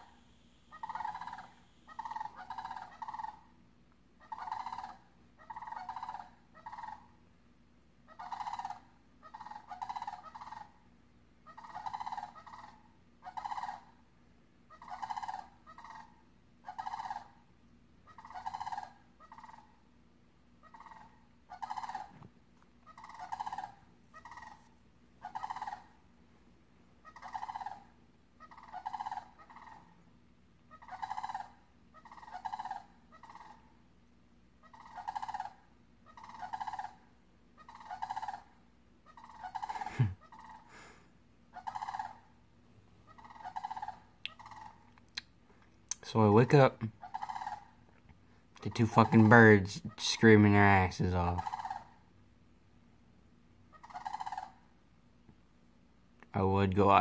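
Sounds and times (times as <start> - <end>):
cranes rattling calls: 0.0 - 3.5, 4.2 - 7.1, 8.1 - 10.8, 11.5 - 13.9, 14.7 - 17.4, 18.1 - 19.8, 20.6 - 22.2, 22.8 - 24.6, 25.2 - 26.0, 27.0 - 30.0, 30.7 - 33.7, 34.6 - 40.8, 41.5 - 42.3, 43.0 - 44.9, 46.3 - 47.9, 48.7 - 52.0, 53.7 - 54.6.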